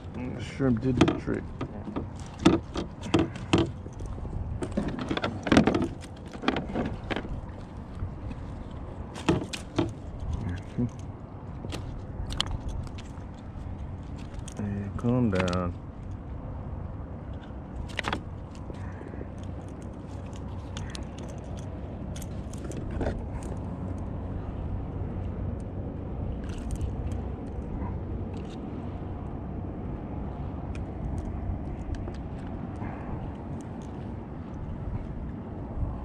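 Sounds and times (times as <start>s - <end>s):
light clicks and knocks: 0.0s - 16.2s
wind buffeting microphone: 0.0s - 36.0s.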